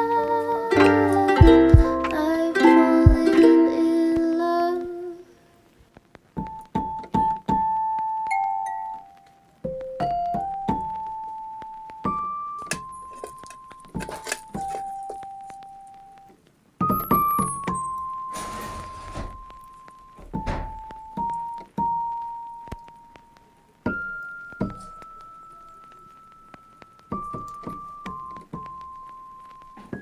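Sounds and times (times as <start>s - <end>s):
keyboard chords: 0.0s - 4.1s
slow keyboard melody: 0.0s - 5.1s, 6.5s - 18.4s.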